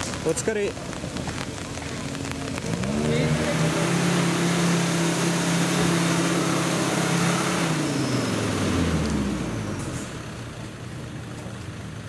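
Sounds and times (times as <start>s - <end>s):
engine revving high: 2.0s - 10.3s.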